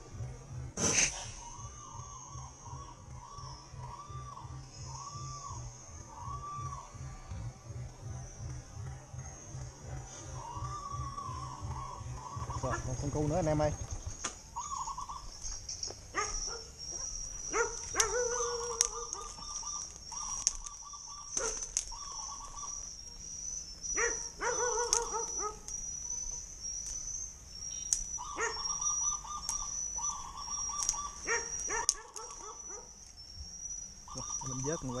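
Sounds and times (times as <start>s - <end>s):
high insect drone: 0.0s - 35.0s
twigs crackling in undergrowth: 13.8s - 33.2s
dog barking: 16.1s - 19.4s, 21.4s - 21.7s, 23.9s - 25.7s, 28.3s - 28.7s, 31.2s - 33.0s.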